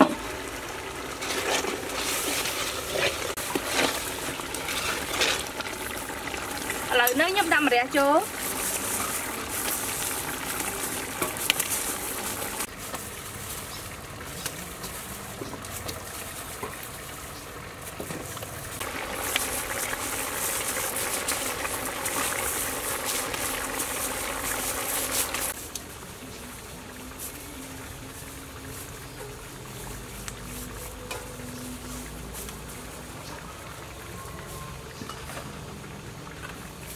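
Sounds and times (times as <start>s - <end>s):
curry boiling in a pot: 0.0s - 36.9s.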